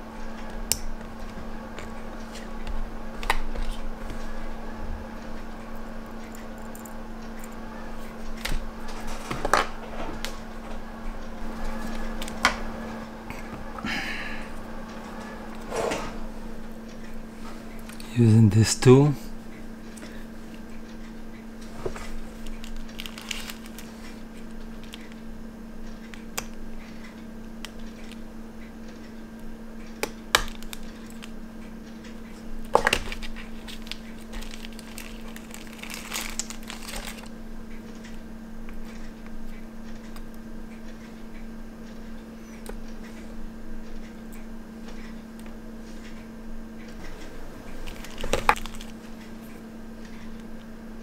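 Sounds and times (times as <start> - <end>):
faint steady hum: 0.0 - 51.0
cling film crinkling: 22.1 - 25.2, 32.8 - 37.3, 47.8 - 49.0.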